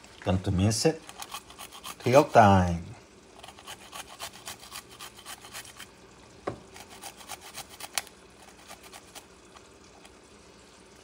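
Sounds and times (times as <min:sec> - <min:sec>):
garlic grated on metal grater: 0:01.0 - 0:02.2, 0:03.4 - 0:05.9, 0:06.7 - 0:09.3.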